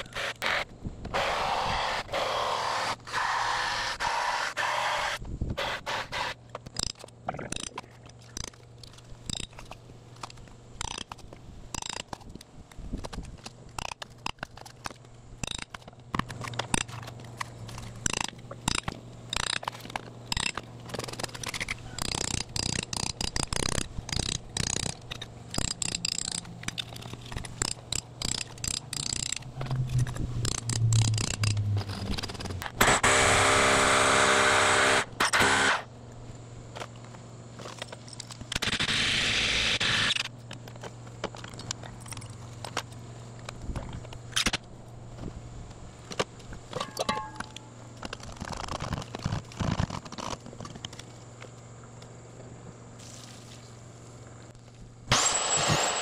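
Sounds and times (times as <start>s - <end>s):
foam insulation scraping and cracking: 48.1s - 51.1s.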